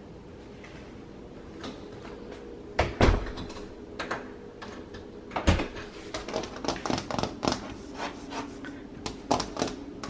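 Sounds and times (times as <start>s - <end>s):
fingers tapping on a panel: 9.0s - 9.8s.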